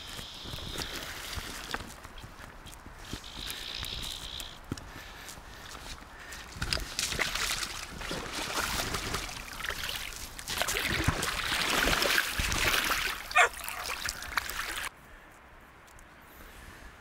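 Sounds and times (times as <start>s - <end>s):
river water splashing: 6.4s - 14.9s
fish thrashing in water: 6.6s - 14.9s.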